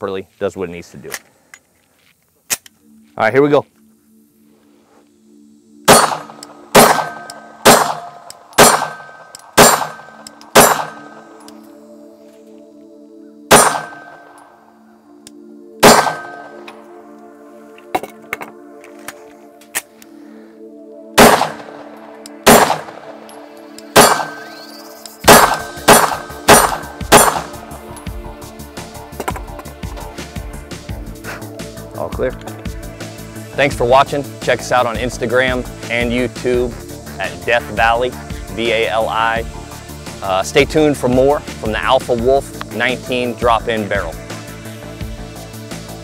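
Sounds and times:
pistol shots: 5.9 - 11.2, 13.5 - 14.2, 15.8 - 16.6, 21.2 - 23.3, 23.9 - 24.7, 25.3 - 27.6.

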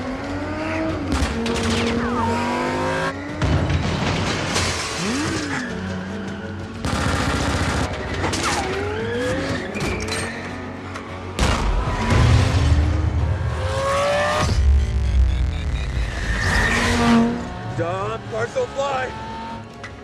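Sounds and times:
car engine revving: 0.0 - 3.3, 11.8 - 20.0
crashes and flying debris: 3.2 - 6.2.

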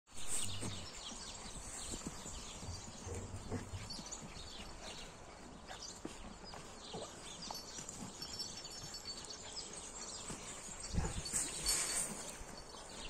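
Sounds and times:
dogs scuffling on dirt: 0.1 - 13.0
patter of paws: 0.2 - 13.0.

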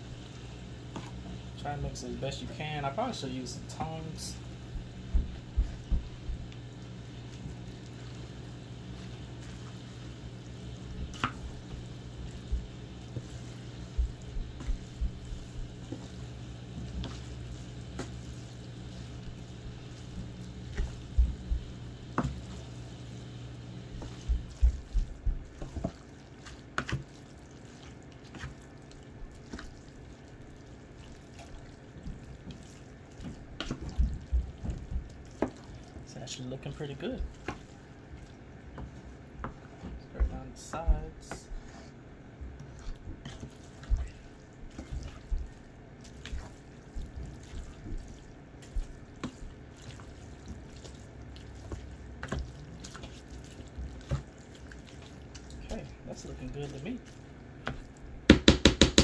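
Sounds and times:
spatula stirring wet squash: 0.0 - 58.3
steady low hum: 0.0 - 58.5.

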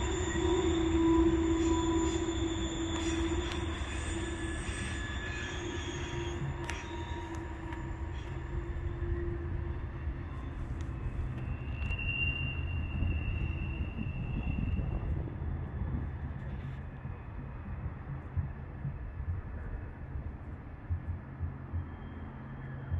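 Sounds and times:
train wheels squealing: 0.0 - 17.2, 21.3 - 22.9.

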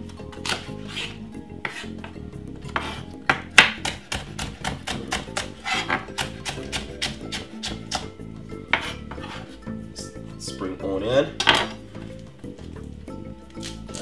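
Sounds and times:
knife chopping on wooden board: 0.4 - 9.5.

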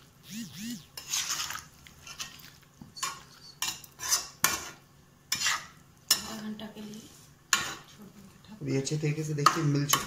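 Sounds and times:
metal spoon scraping metal pan: 0.9 - 2.4, 3.0 - 6.4, 7.5 - 7.9.

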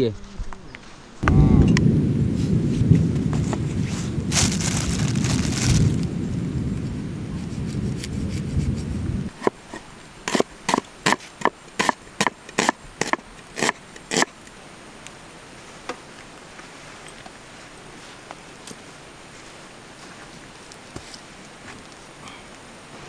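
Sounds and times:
low heavy rumble: 1.2 - 9.3.

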